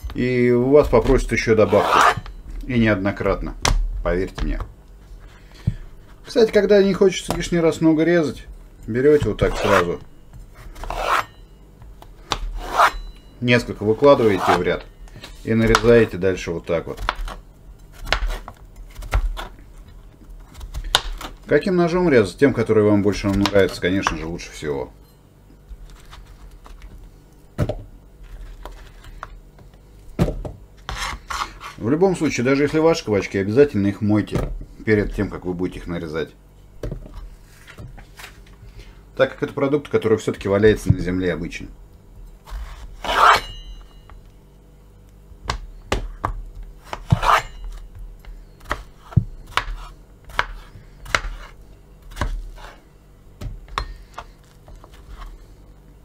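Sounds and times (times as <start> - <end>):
knife striking cutting board: 0.9 - 2.4, 10.8 - 11.4, 42.6 - 44.1, 45.5 - 47.8.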